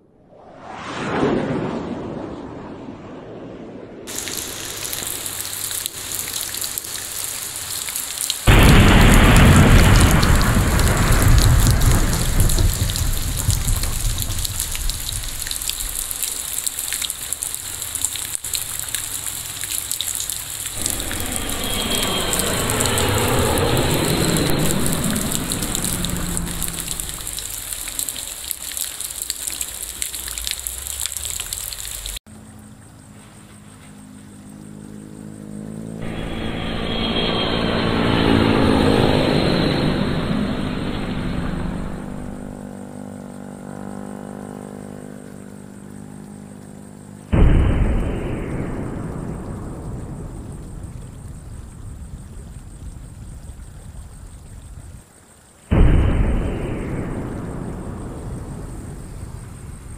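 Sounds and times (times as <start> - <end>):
thunder rumbling: 1.4 - 6.3, 8.4 - 16.6, 18.5 - 28.8, 36.0 - 42.8, 47.3 - 55.0, 55.7 - 59.9
heavy rain: 4.1 - 32.2, 36.0 - 43.0, 47.0 - 59.9.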